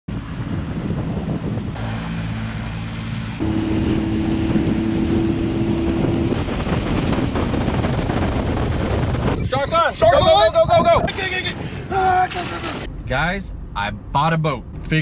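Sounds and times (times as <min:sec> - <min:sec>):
wind buffeting microphone: 0:00.1 - 0:13.1
water rushing past hull: 0:01.7 - 0:09.4
outboard motor running: 0:01.8 - 0:07.6.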